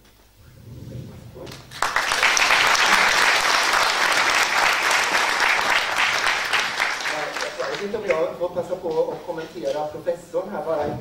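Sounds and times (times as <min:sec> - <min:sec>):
audience clapping: 0:01.5 - 0:09.1.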